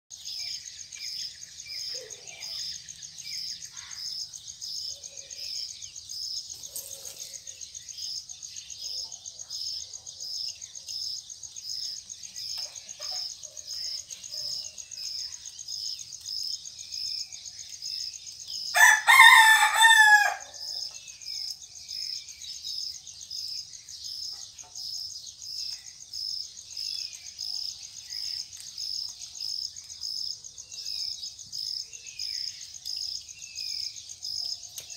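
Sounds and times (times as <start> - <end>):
faint bird chirps: 0.1 - 34.9
insects chirping: 0.1 - 34.9
high insect hum: 0.2 - 34.9
rooster crowing: 18.7 - 20.8.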